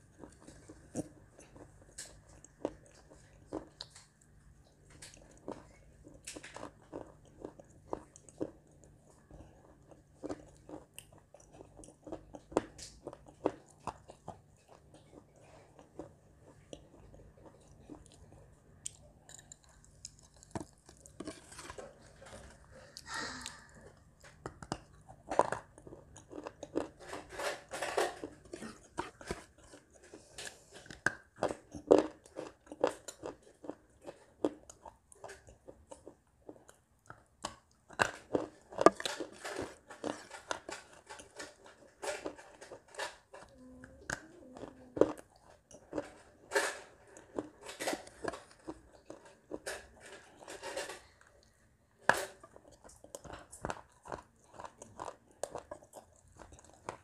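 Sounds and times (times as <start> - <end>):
clay being chewed with crunches: 0.0 - 57.0.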